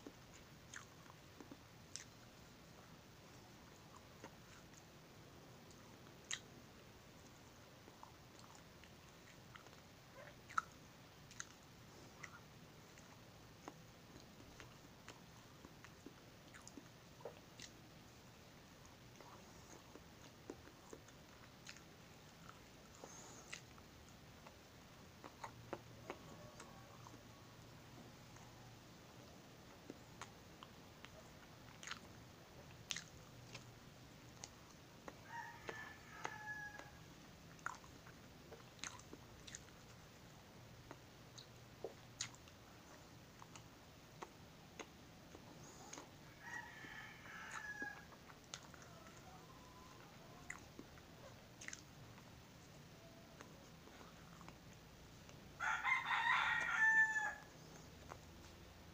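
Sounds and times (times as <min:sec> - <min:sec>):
faint chewing mouth clicks: 0:00.0 - 0:02.4, 0:05.6 - 0:06.6, 0:07.2 - 0:18.0, 0:18.8 - 0:27.4, 0:29.2 - 0:36.9, 0:37.5 - 0:55.5, 0:57.7 - 0:58.7
rooster crowing: 0:35.2 - 0:37.1, 0:46.2 - 0:50.6, 0:55.6 - 0:57.5.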